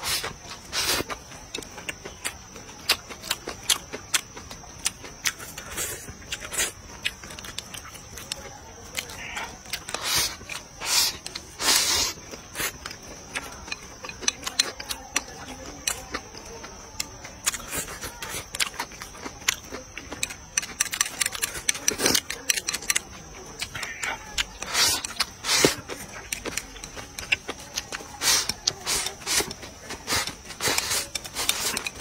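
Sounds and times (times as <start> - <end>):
wet chewing and lip smacks: 0.2 - 32.0
chopsticks scraping a plate: 23.6 - 32.0.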